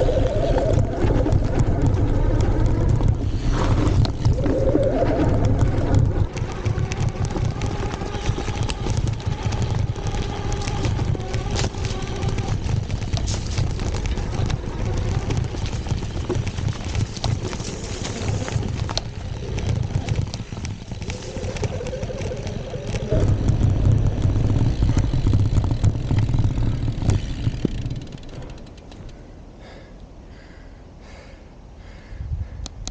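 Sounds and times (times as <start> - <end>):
bike clattering over rough ground: 0.0 - 29.3
bike tyres rumbling: 0.0 - 32.9.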